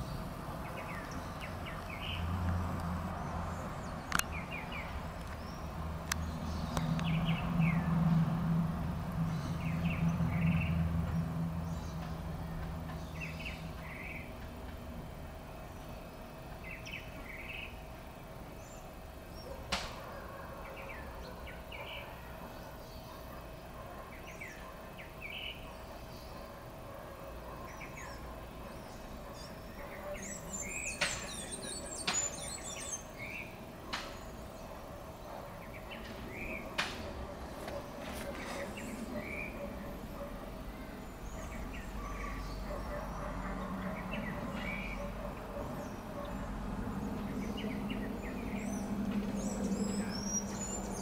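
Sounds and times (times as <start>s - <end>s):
birds chirping: 0.0s - 51.0s.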